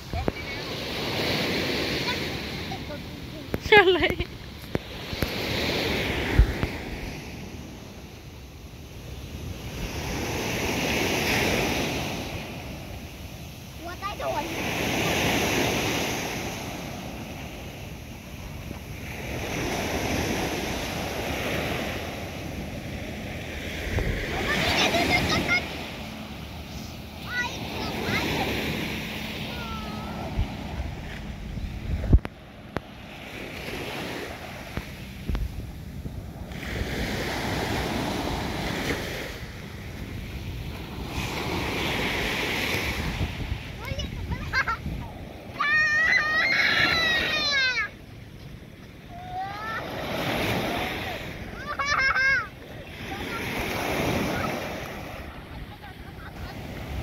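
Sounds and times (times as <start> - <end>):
small waves breaking on beach: 0.0 - 57.0
wind on microphone: 2.3 - 8.2, 15.6 - 46.1.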